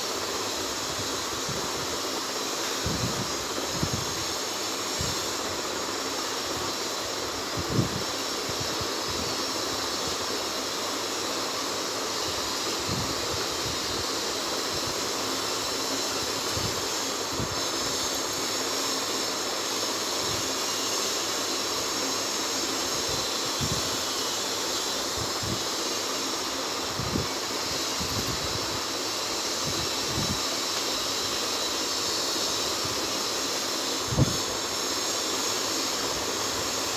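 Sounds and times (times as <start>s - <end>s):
steady rushing hiss: 0.0s - 36.9s.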